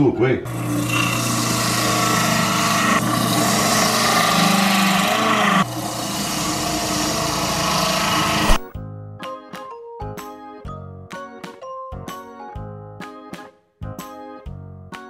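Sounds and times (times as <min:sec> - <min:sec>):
electric juicer motor whirring: 0:00.5 - 0:08.7.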